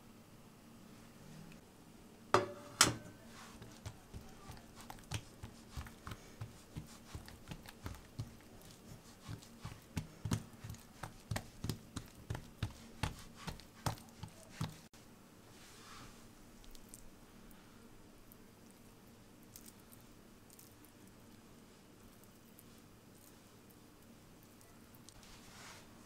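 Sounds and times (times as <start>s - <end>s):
hands patting dough: 2.8s - 14.9s
hands slapping dough: 2.8s - 14.9s.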